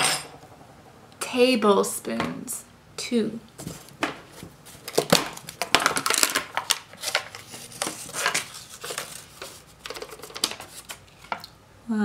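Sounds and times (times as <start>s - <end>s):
cardboard and plastic rustling: 3.6s - 11.5s.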